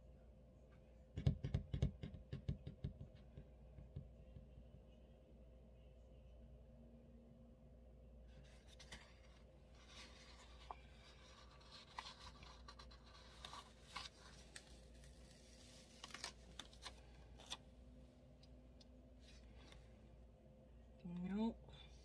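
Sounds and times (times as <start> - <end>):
paper rustling and scratching: 8.3 - 17.6.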